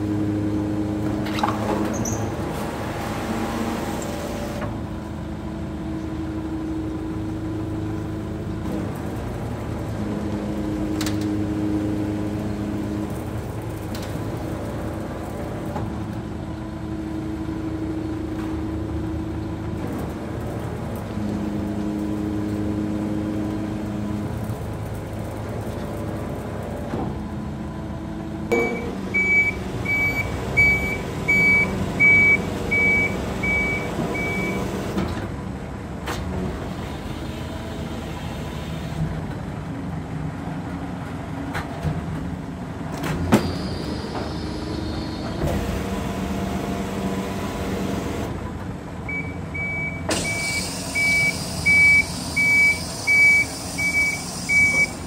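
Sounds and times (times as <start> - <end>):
garbage truck engine and hydraulics: 0.0 - 55.0
high warning beeps: 28.5 - 34.6, 49.1 - 55.0
hydraulic hiss: 50.1 - 55.0.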